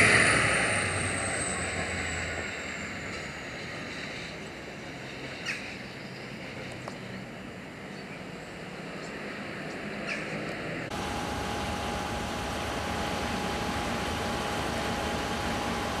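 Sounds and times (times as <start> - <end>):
diesel locomotive engine rumble: 0.0 - 16.0
thin high whine sliding down: 10.9 - 16.0.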